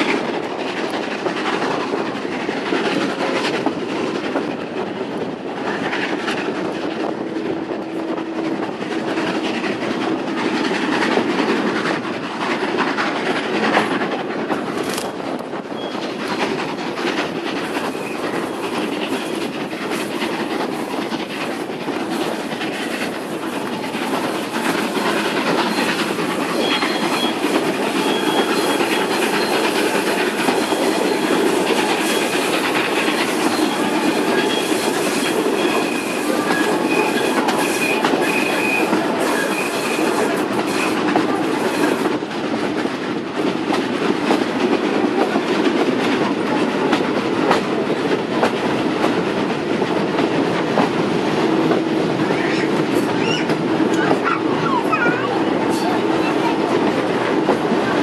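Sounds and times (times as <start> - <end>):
train wheels clickety-clack: 0.0 - 58.0
wheels squealing: 24.9 - 32.5, 52.2 - 56.5.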